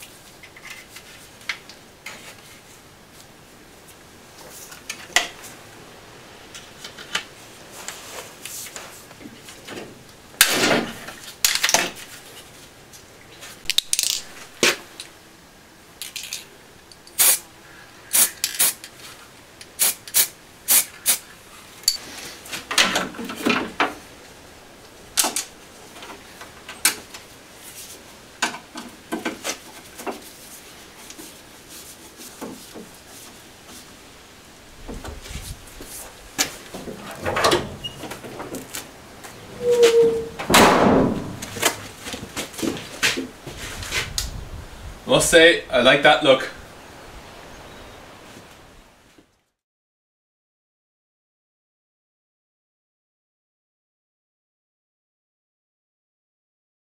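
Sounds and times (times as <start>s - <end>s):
rustling hissing bursts: 17.0s - 22.7s.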